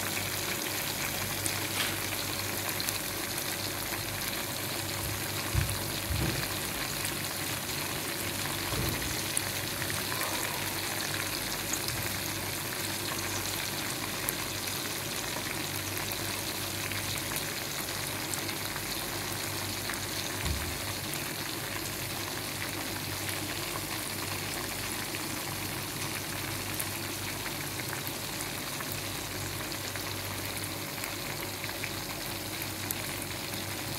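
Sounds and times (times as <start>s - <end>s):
chicken sizzling in hot oil: 0.0s - 33.9s.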